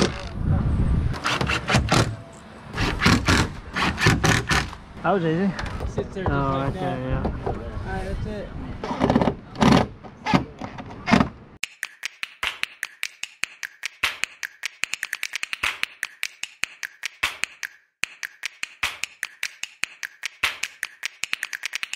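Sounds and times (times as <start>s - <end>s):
sharp clicks and snaps: 11.6s - 21.9s.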